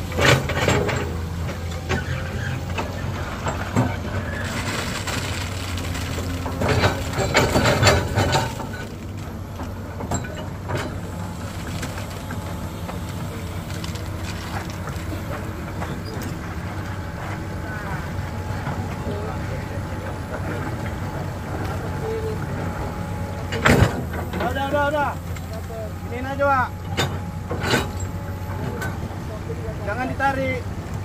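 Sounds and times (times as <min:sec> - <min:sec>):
truck engine rumbling: 0:00.0 - 0:31.0.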